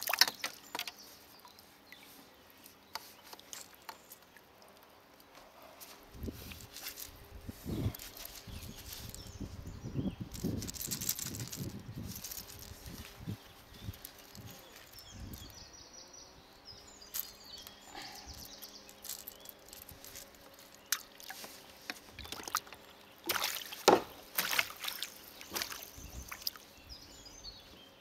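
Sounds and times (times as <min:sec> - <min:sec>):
water splashes: 0:00.0 - 0:00.9, 0:22.2 - 0:26.6
small clicks and knocks: 0:00.0 - 0:01.0.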